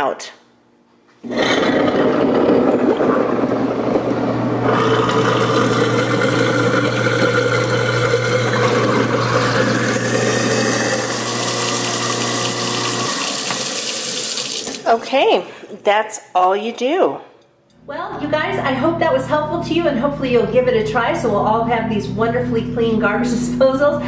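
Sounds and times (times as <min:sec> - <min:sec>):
garbage disposal motor humming: 0:01.2 - 0:15.8, 0:17.7 - 0:24.0
water rushing down drain: 0:01.3 - 0:14.9.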